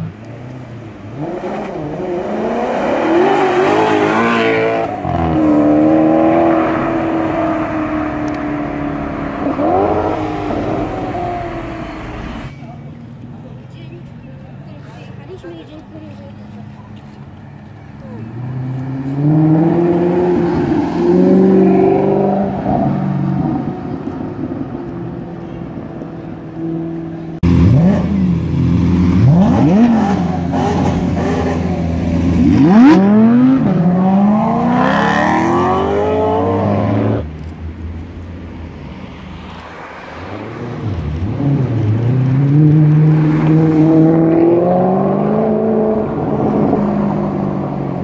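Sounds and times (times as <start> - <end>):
car engines revving: 0.0 - 48.0.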